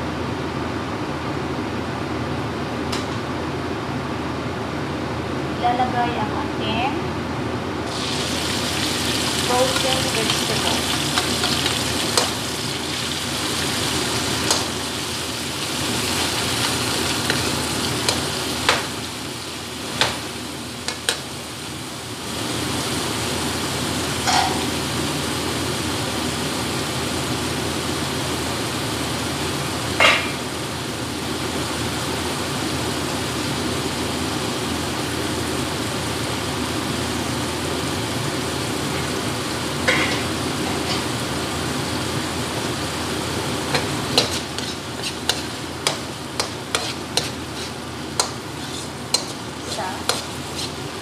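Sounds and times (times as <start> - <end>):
kitchen exhaust fan: 0.0 - 51.0
vegetables sizzling in oil: 7.8 - 51.0
ladle scraping a wok: 43.7 - 51.0.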